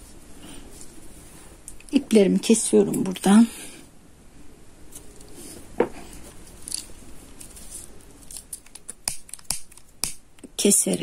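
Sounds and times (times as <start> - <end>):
small scissors snipping yarn: 8.4 - 10.5.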